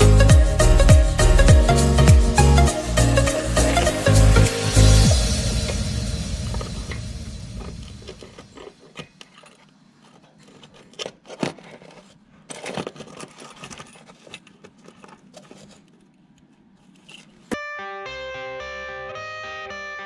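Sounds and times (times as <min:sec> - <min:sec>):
metal parts clinking: 0:10.4 - 0:15.7.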